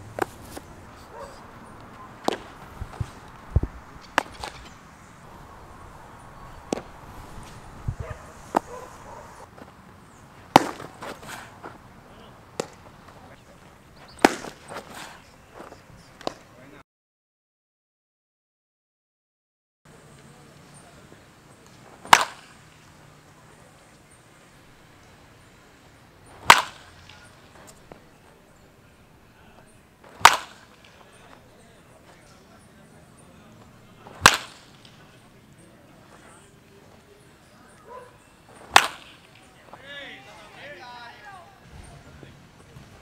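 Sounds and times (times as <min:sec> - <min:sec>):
baseball smacking into glove: 0:02.2 - 0:04.8, 0:06.7 - 0:08.8, 0:10.5 - 0:11.8, 0:12.6 - 0:12.9, 0:14.0 - 0:16.4, 0:22.0 - 0:22.6, 0:26.3 - 0:28.0, 0:30.1 - 0:31.4, 0:34.0 - 0:35.1, 0:38.6 - 0:39.4.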